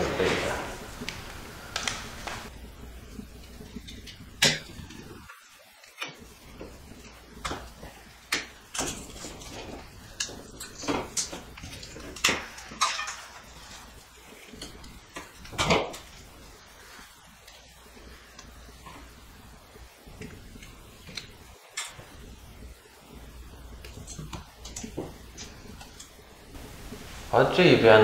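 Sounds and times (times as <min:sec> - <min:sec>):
wire strippers clicking and snipping: 0:03.4 - 0:16.5, 0:20.0 - 0:22.3, 0:23.7 - 0:26.2.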